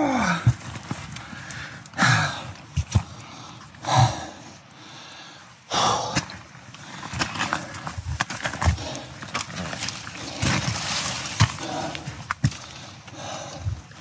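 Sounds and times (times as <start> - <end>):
man breathing hard: 1.2 - 7.1, 11.5 - 14.0.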